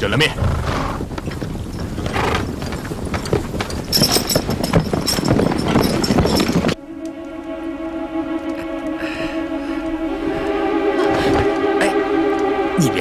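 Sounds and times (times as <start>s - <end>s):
horse hooves galloping: 0.4s - 7.3s
high steady tone: 6.8s - 13.0s.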